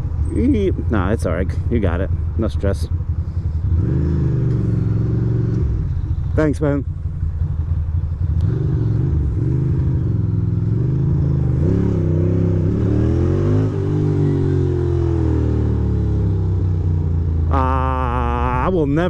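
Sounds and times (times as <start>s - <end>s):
motorcycle engine accelerating: 0.0s - 19.0s
wind and road noise: 0.0s - 19.0s.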